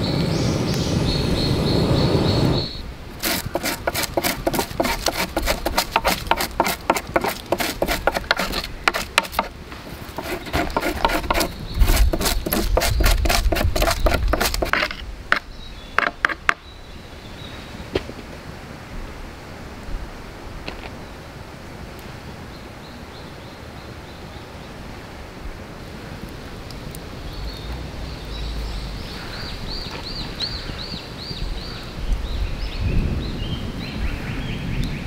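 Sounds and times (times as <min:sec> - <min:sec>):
campfire crackling: 0:00.0 - 0:17.3, 0:18.9 - 0:22.4, 0:23.0 - 0:30.8
knife scraping wood: 0:03.2 - 0:16.6.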